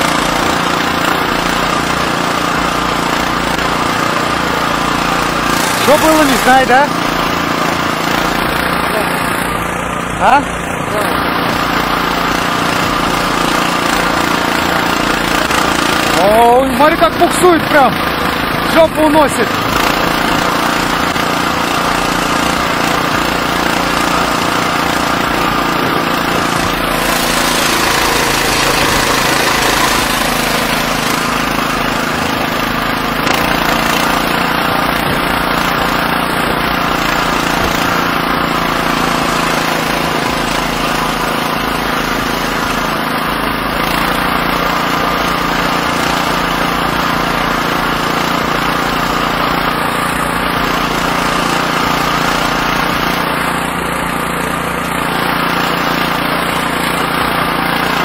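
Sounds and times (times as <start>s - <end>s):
single-cylinder engine running: 0.0s - 58.0s.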